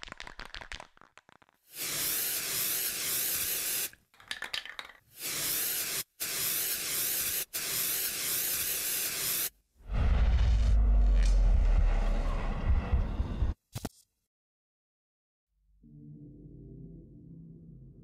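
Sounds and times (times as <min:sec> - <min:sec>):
spray can rattle: 0:00.0 - 0:09.5
spray paint hissing: 0:01.6 - 0:04.0, 0:05.1 - 0:09.5.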